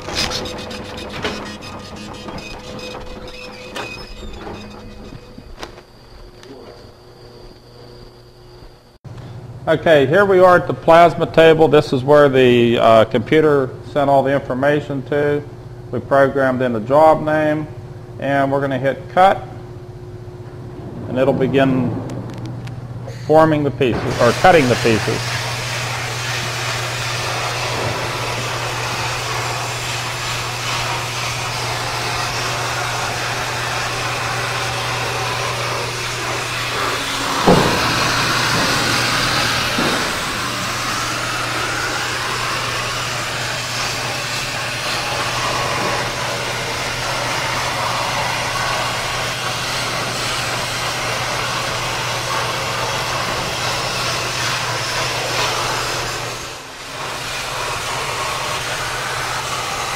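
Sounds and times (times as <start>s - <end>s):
constant low hum: 0.0s - 33.1s
plasma arc hissing: 23.9s - 59.9s.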